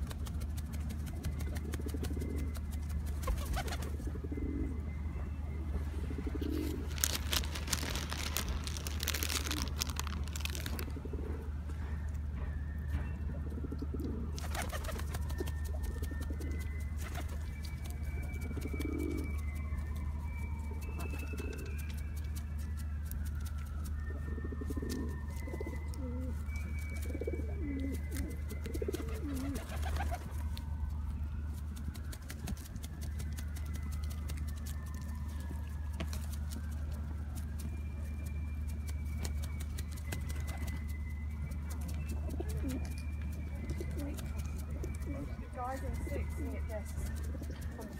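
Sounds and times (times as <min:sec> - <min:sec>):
wings flapping: 0:00.0 - 0:04.0, 0:06.5 - 0:11.0, 0:14.4 - 0:19.2, 0:28.5 - 0:30.4
pigeons cooing: 0:01.3 - 0:11.6, 0:13.5 - 0:19.6, 0:24.3 - 0:30.4, 0:41.8 - 0:47.9.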